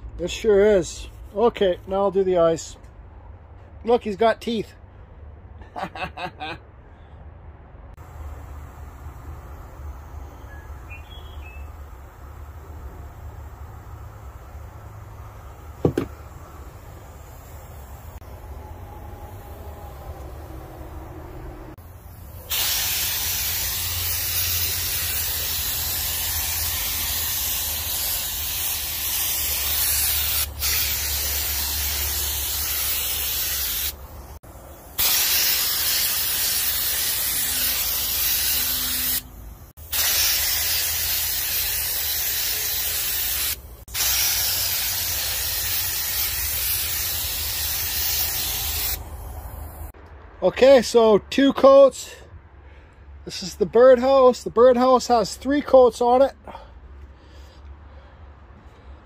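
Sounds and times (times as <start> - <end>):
spray gun hissing: 8.1 - 18.3, 21.7 - 50.0.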